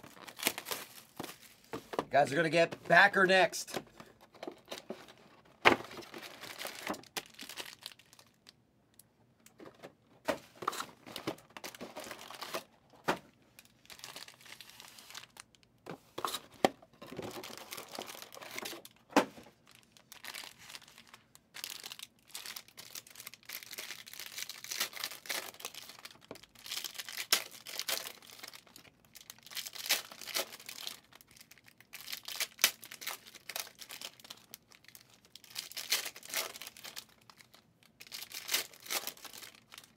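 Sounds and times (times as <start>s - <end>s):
wrappers tearing and crinkling: 0.0s - 1.7s, 5.8s - 8.6s, 10.8s - 12.7s, 13.6s - 15.7s, 17.2s - 39.9s.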